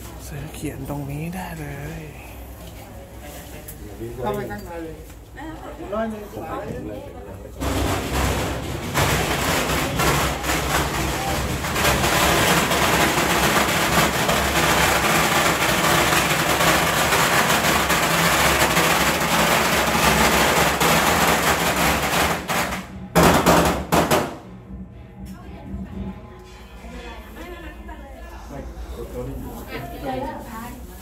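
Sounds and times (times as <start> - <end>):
firecrackers crackling: 7.6 - 24.4.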